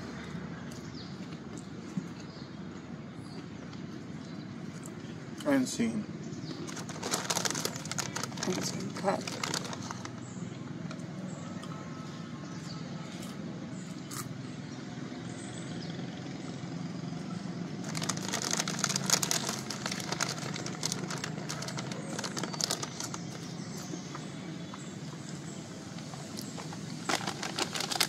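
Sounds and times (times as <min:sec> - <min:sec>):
road traffic drone: 0:00.0 - 0:28.0
plastic snack bag crinkling: 0:06.6 - 0:10.2, 0:17.8 - 0:23.5, 0:26.6 - 0:28.0.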